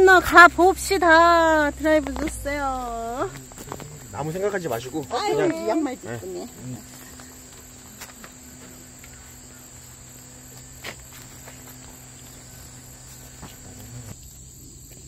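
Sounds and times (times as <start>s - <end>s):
insects chirring: 0.0s - 15.0s
faint ticks: 1.0s - 5.6s, 6.4s - 15.0s.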